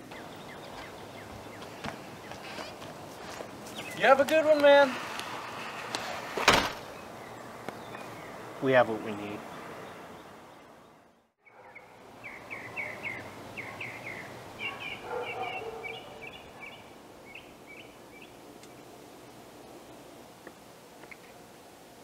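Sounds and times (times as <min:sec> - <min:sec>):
bird chirping: 0:00.0 - 0:02.6, 0:03.6 - 0:04.3, 0:06.8 - 0:19.4.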